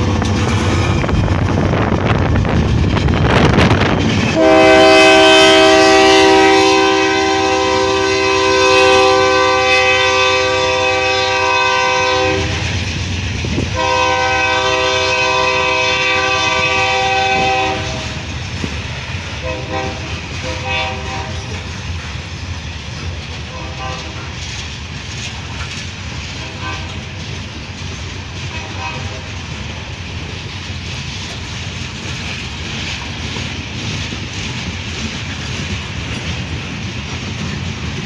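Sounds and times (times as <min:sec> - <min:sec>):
locomotives rumbling: 0:00.0 - 0:07.0
freight cars clickety-clack: 0:00.0 - 0:07.9, 0:10.4 - 0:38.0
locomotive air horn chord: 0:04.3 - 0:12.7, 0:13.7 - 0:18.2, 0:19.4 - 0:21.7, 0:23.5 - 0:24.3, 0:26.4 - 0:27.1, 0:28.5 - 0:29.4.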